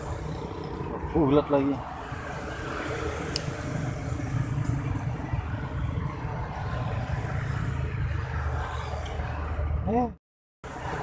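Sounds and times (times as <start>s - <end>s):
vehicle engines humming: 0.0s - 11.0s.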